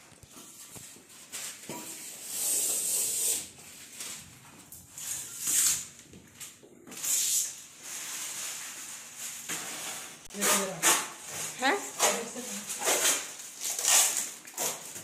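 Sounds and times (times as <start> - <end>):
plastic film peeling rips: 12.8 - 15.0.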